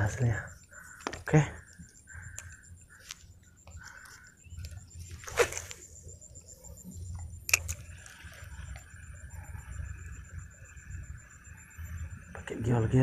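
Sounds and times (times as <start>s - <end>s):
sharp click: 7.4s - 7.9s.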